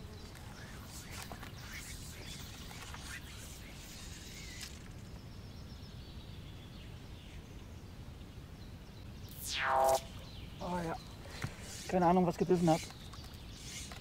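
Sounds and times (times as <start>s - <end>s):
faint chirp: 0.0s - 14.0s.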